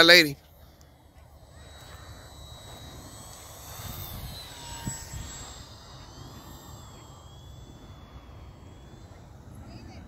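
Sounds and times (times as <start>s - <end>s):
model airplane motor whine: 0.0s - 10.0s
wind rumble on microphone: 3.7s - 6.7s.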